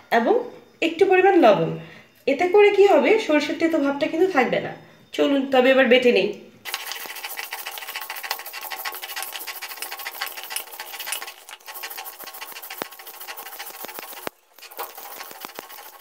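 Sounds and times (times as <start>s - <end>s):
stone roller grinding seeds: 6.7s - 16.0s.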